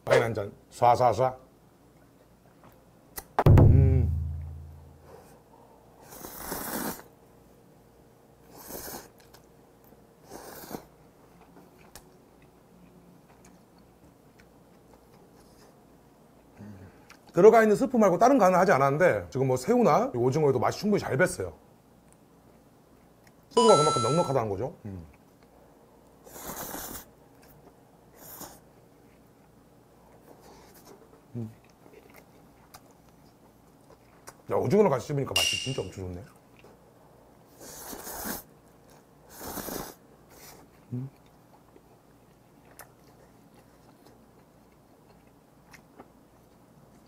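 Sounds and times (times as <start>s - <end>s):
quiet wet chewing: 1.8s - 2.9s, 8.9s - 17.4s, 22.0s - 23.5s, 25.0s - 34.6s, 36.1s - 47.0s.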